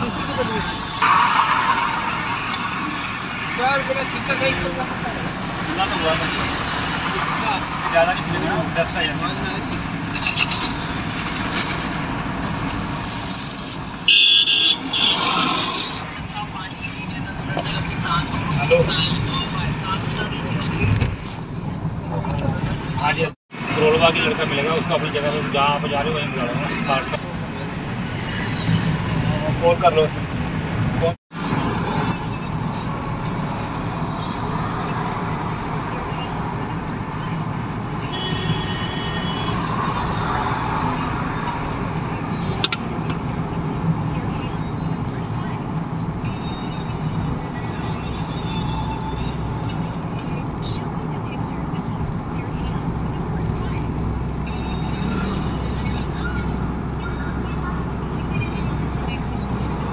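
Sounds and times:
car road noise inside cabin: 0:00.0 - 0:59.9
high-pitched vehicle horn honks: 0:14.1 - 0:15.2, 0:38.0 - 0:39.6.

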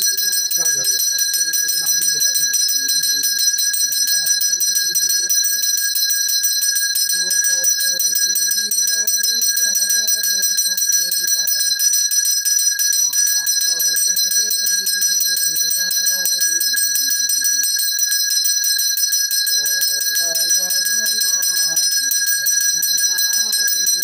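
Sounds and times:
man chanting: 0:00.0 - 0:05.7, 0:19.5 - 0:24.0
hand bell ringing rapidly: 0:00.0 - 0:24.0.

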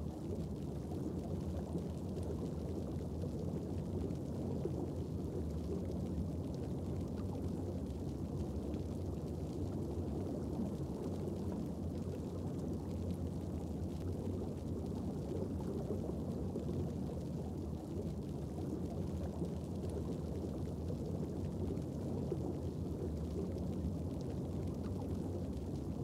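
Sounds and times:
low underwater rumble: 0:00.0 - 0:26.0.

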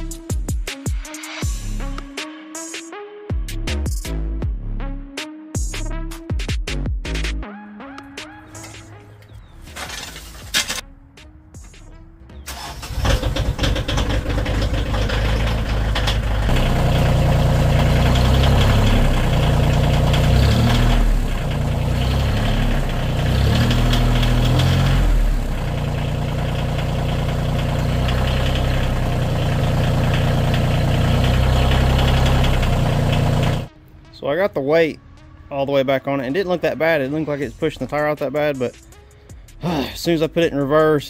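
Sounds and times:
tractor diesel engine: 0:08.3 - 0:10.8, 0:12.5 - 0:33.7.

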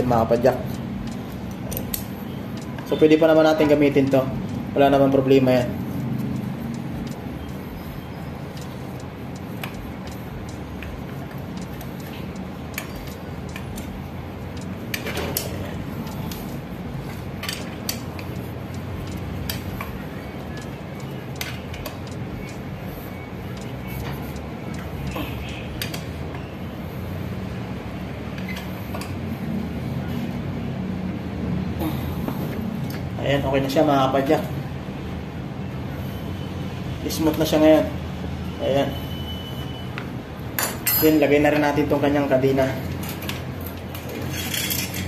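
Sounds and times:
steady background noise: 0:00.0 - 0:45.0.

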